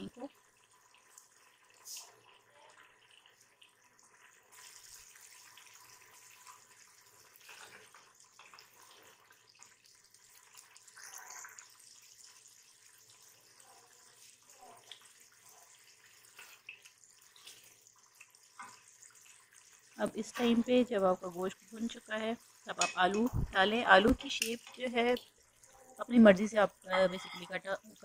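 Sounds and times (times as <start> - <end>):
curry bubbling and sizzling: 0.0 - 28.0
spatula stirring: 4.4 - 20.8.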